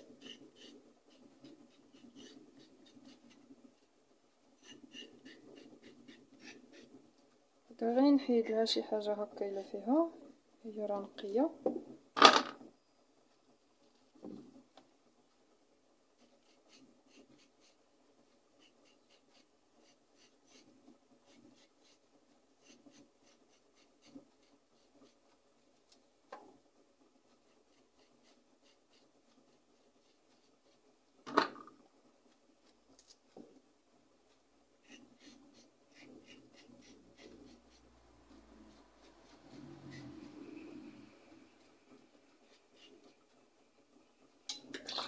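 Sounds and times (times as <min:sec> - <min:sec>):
courgette skin being scraped: 0:00.0 - 0:03.9, 0:04.6 - 0:07.1, 0:16.2 - 0:25.4, 0:27.3 - 0:30.8, 0:34.8 - 0:43.5.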